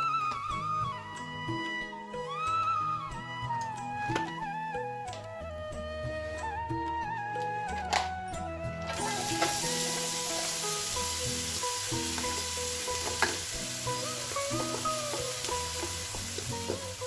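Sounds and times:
background music: 0:00.0 - 0:17.0
onion sizzling in hot oil: 0:08.9 - 0:17.0.

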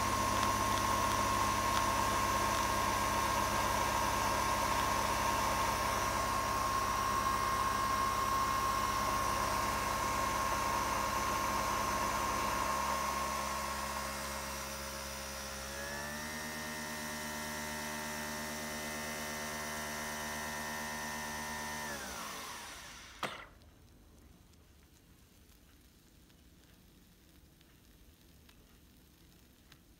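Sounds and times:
coffee machine whine: 0:00.0 - 0:23.6.

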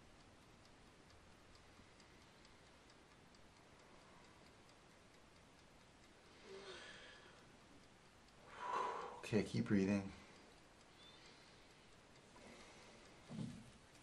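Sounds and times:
mechanical kitchen timer ticking: 0:00.0 - 0:14.0
short breath: 0:06.4 - 0:07.4, 0:08.5 - 0:09.2.

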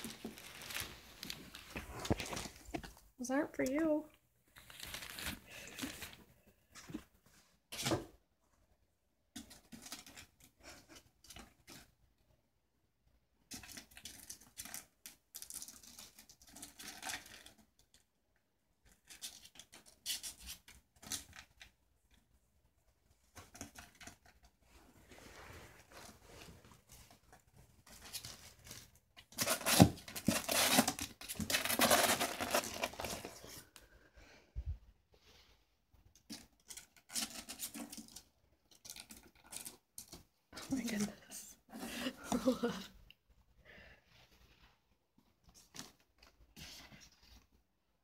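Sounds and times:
ferret rustling tissue paper: 0:00.0 - 0:02.6, 0:04.6 - 0:06.2.

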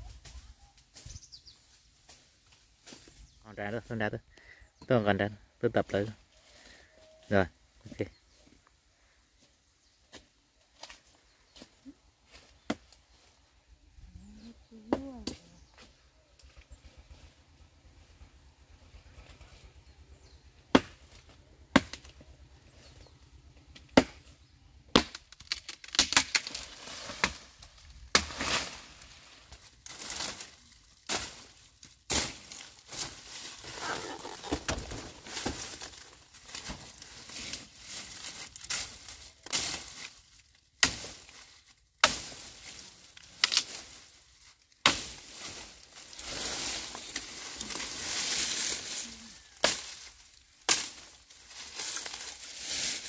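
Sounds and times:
rustling and scraping: 0:26.4 - 0:53.0.

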